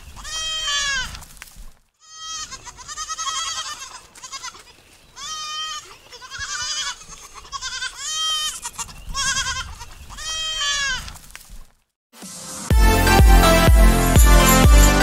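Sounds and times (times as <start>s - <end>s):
goat bleating: 0.1s - 1.2s, 2.0s - 11.2s.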